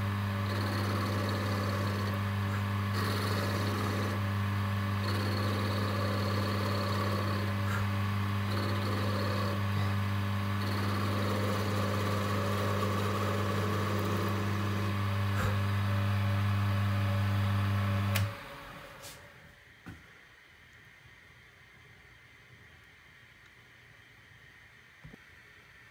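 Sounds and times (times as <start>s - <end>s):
lathe motor humming: 0.0s - 19.0s.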